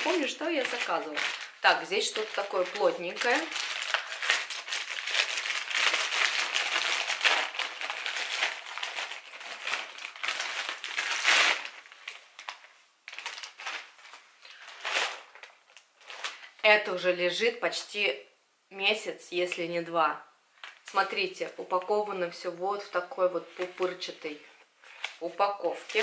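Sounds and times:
package rustling: 0:00.0 - 0:16.6
plastic mailer bag crackling: 0:00.0 - 0:16.6.

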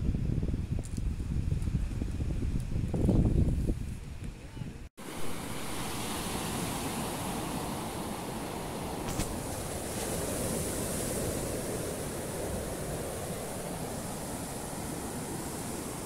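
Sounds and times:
small waves breaking on sand: 0:05.0 - 0:16.0.

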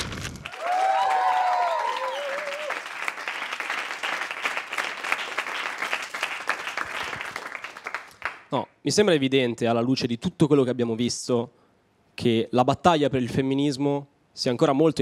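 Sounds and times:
audience applauding: 0:00.3 - 0:08.5
people cheering and whooping: 0:00.4 - 0:03.1.

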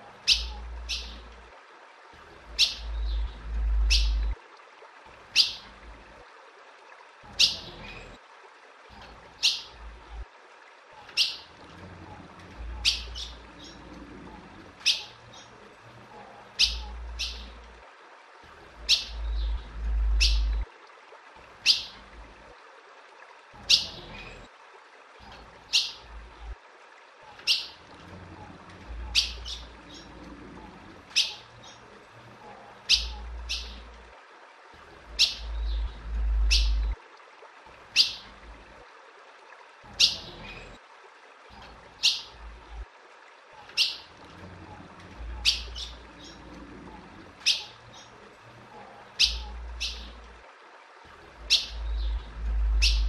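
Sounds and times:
low rumble: 0:02.8 - 0:04.4, 0:19.2 - 0:20.6, 0:35.5 - 0:37.0, 0:51.8 - 0:53.0.

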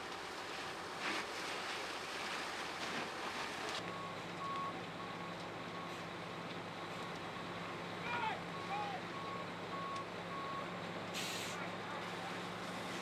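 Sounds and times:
fire roaring and crackling: 0:00.0 - 0:13.0
reversing alarm beeping: 0:08.5 - 0:10.7.

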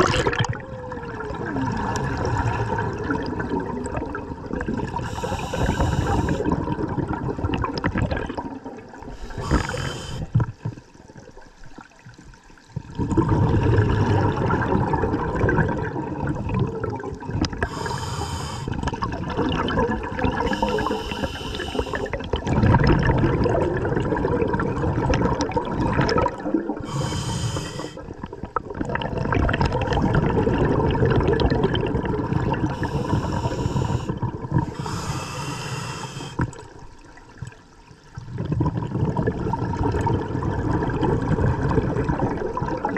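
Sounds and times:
exhaled air bubbling underwater: 0:00.0 - 0:42.9
regulator hiss on inhale: 0:05.0 - 0:06.5, 0:09.1 - 0:10.4, 0:17.6 - 0:18.8, 0:20.4 - 0:22.2, 0:26.8 - 0:28.0, 0:32.7 - 0:36.5.

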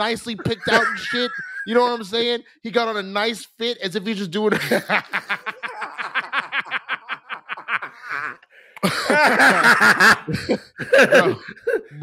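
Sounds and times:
men laughing: 0:00.0 - 0:02.3, 0:04.5 - 0:12.0.

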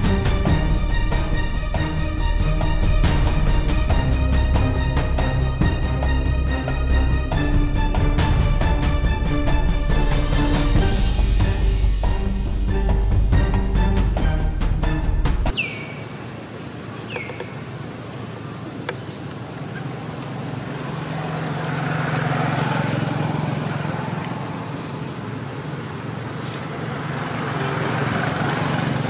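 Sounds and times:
music: 0:00.0 - 0:15.6
road traffic hum: 0:00.0 - 0:29.0.

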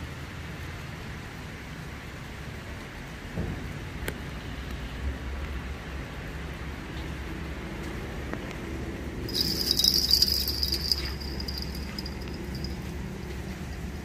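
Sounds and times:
low hum and hiss: 0:00.0 - 0:14.0
small metal bells jingling: 0:09.3 - 0:13.5.

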